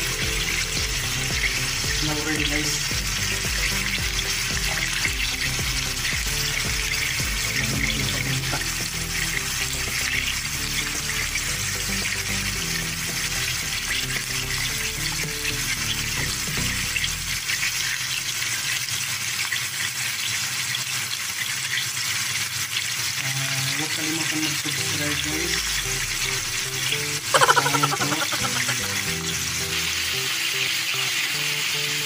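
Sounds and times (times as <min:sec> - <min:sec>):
background music: 0:00.0 - 0:17.6, 0:24.3 - 0:32.0
chicken sizzling in a pan: 0:00.0 - 0:32.0.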